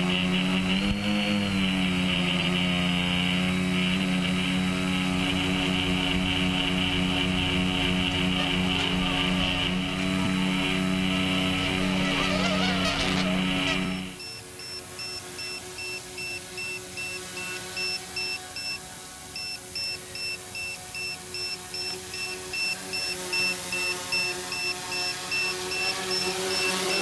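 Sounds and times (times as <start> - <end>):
drone motors humming: 0.0 - 27.0
geese honking: 5.0 - 14.2
electronic alarm beeping: 13.9 - 18.8, 19.4 - 27.0.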